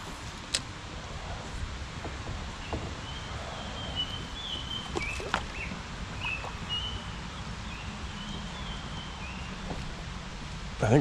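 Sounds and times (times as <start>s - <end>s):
steady low rumble: 0.0s - 11.0s
bird calling with high whistles: 3.0s - 7.2s.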